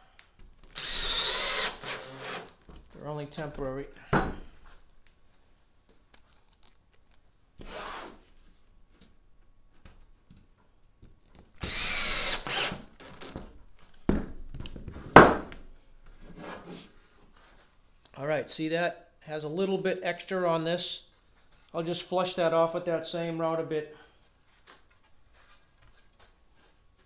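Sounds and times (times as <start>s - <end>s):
cordless drill driving screw: 0.7s - 2.6s, 11.6s - 13.2s.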